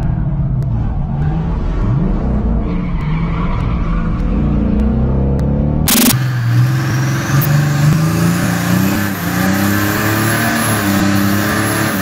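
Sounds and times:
engine revving: 0.0 - 12.0.

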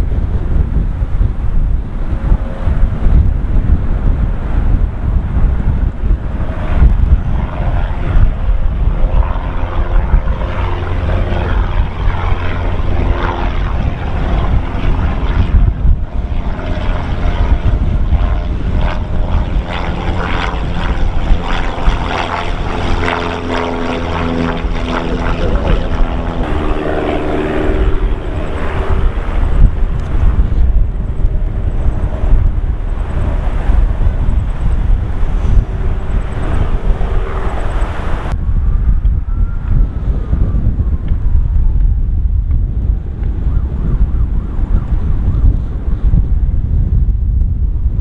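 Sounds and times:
propeller plane flying overhead: 0.0 - 48.0
wind buffeting microphone: 0.0 - 48.0.

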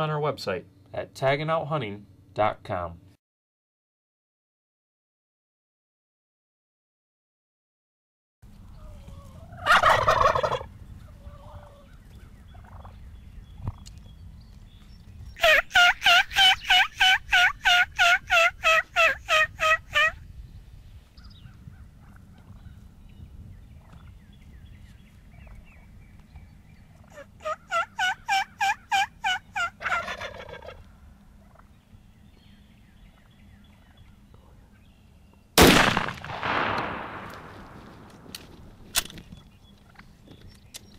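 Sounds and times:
turkey gobbling: 8.7 - 13.0, 15.4 - 20.2, 21.7 - 22.8, 26.9 - 31.8
turkey yelps: 8.7 - 13.0, 15.4 - 20.2, 27.0 - 31.7
gunshot with echo: 35.6 - 38.8.

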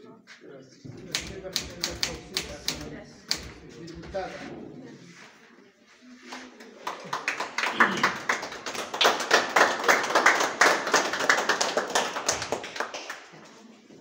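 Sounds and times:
people clapping: 1.0 - 4.2, 6.1 - 13.9.

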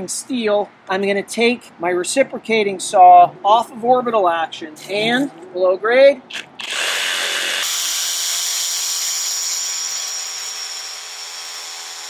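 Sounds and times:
reciprocating saw cutting steel: 6.3 - 12.0.

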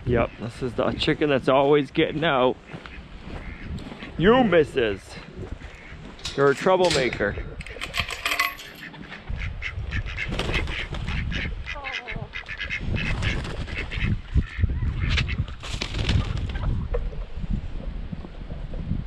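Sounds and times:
ducks quacking: 2.5 - 7.8, 8.8 - 15.6
chickens clucking: 5.1 - 15.6.

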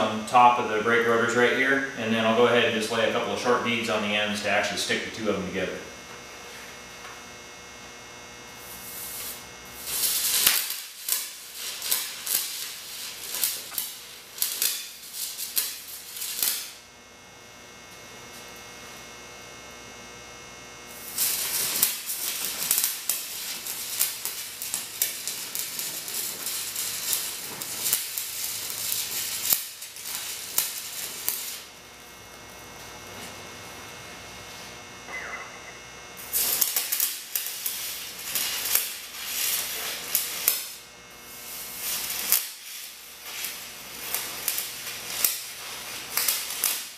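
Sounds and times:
welding arc crackling: 0.0 - 46.9
low hum: 33.5 - 36.3.

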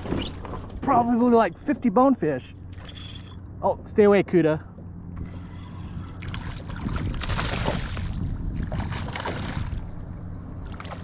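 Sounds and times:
fish splashing in water: 5.2 - 10.0.

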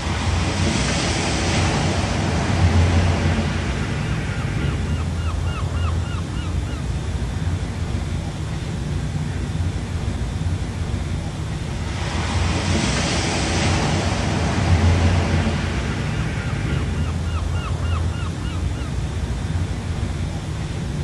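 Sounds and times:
wind rumbling on microphone: 0.0 - 21.0.

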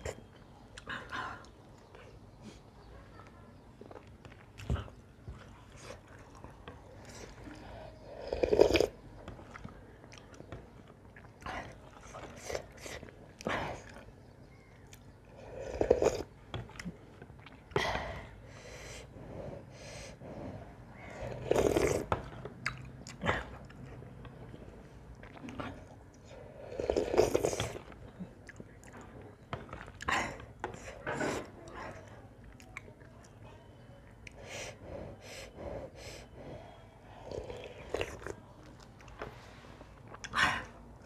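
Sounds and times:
chewing: 0.0 - 17.8, 20.5 - 35.6, 37.1 - 41.0
soup slurping: 21.2 - 22.1, 26.6 - 27.9.

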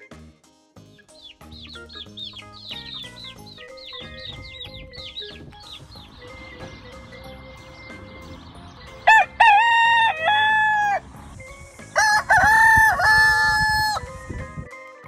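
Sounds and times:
rooster crowing: 9.1 - 11.0, 12.0 - 14.0.

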